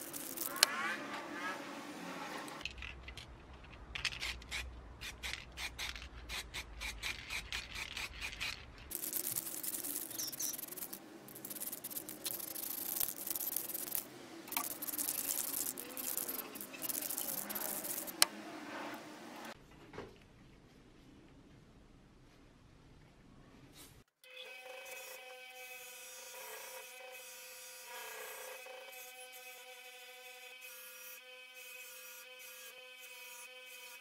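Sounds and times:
spray paint can rattling: 0.0 - 0.7, 3.9 - 18.3.

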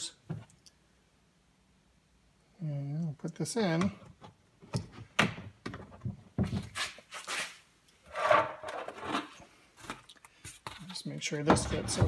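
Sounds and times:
rubber scraping plastic: 6.6 - 9.4.

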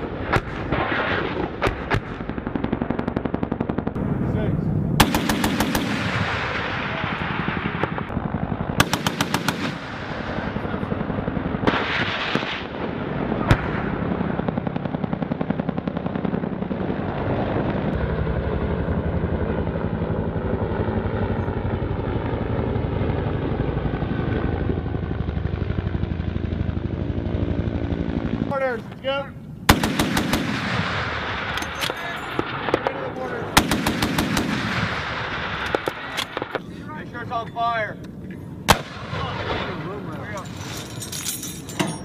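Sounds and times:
cannon firing rapid bursts: 0.0 - 4.3, 4.9 - 17.2, 29.6 - 36.6, 38.7 - 40.1
helicopter rotor and turbines: 0.0 - 42.0
sharp crack: 5.0 - 8.2, 28.8 - 36.7, 38.7 - 40.4.

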